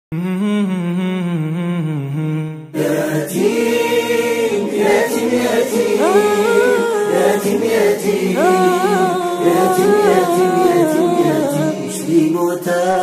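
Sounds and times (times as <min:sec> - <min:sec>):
low male voice singing: 0:00.1 - 0:02.9, 0:06.0 - 0:13.0
voices singing in harmony: 0:00.2 - 0:13.0.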